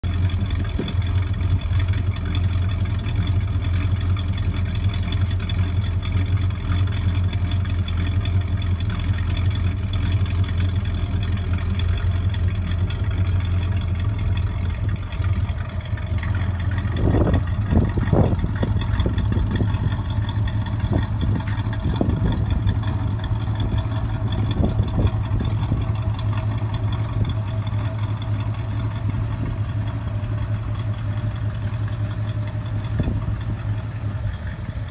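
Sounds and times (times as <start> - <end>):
car engine idling: 0.0 - 34.9
engine throttle blips: 0.0 - 34.9.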